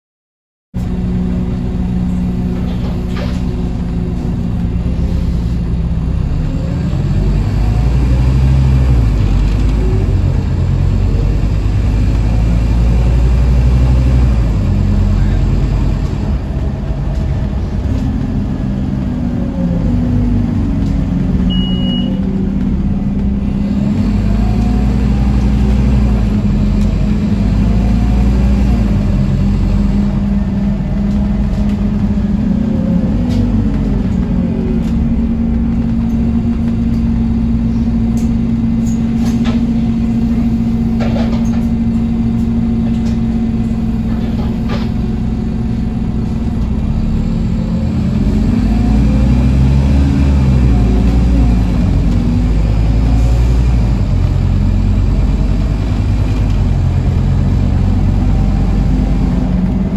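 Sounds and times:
bus diesel engine running: 0:00.8 - 0:59.9
road rumble: 0:00.8 - 0:59.9
short high beep: 0:21.5 - 0:22.2.

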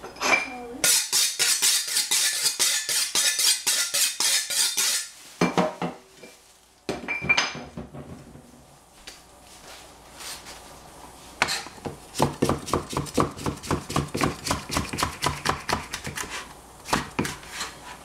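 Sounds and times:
knife scraping on sharpening steel: 0:00.8 - 0:05.2.

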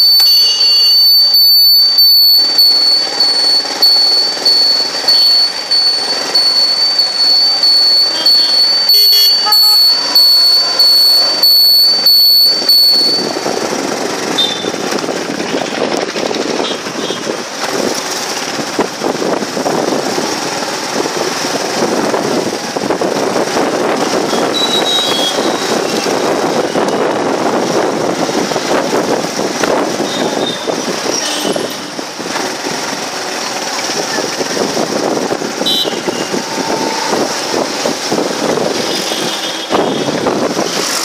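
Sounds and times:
short high tones: 0:00.0 - 0:13.6
rhythmic pulsing: 0:00.0 - 0:14.2
steady high whine: 0:00.0 - 0:14.2
vehicle engine and road noise: 0:00.0 - 0:41.0.

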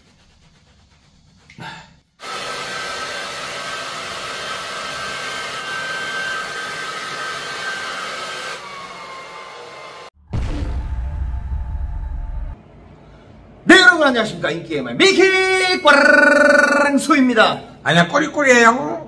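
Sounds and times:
hair dryer blowing: 0:02.2 - 0:10.2.

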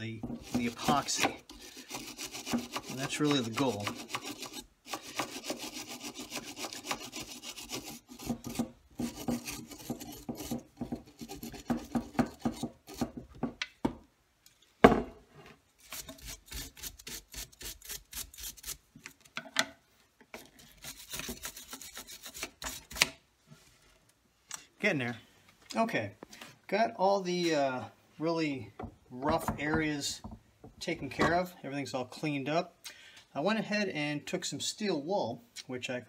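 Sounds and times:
wire brush scrubbing plastic: 0:00.0 - 0:13.2, 0:20.4 - 0:23.0.

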